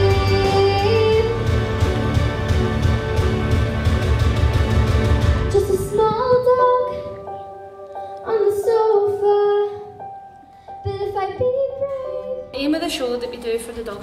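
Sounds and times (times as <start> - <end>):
girl singing into microphone: 0.0 - 1.5, 5.5 - 12.6.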